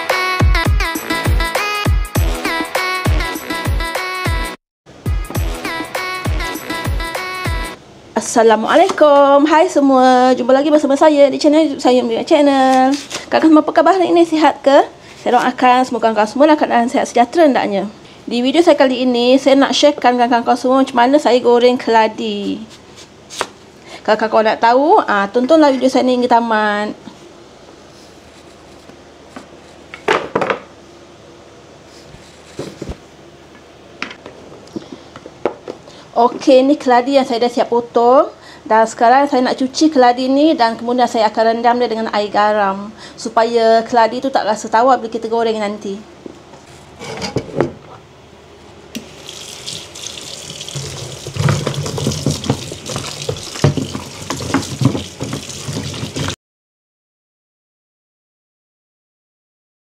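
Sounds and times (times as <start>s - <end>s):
cleaver scraping on cutting board: 12.7s - 13.3s, 22.6s - 23.5s, 28.0s - 30.0s, 50.7s - 56.4s
tap running into basin: 49.0s - 56.4s
basin set down knocks: 50.6s - 56.4s.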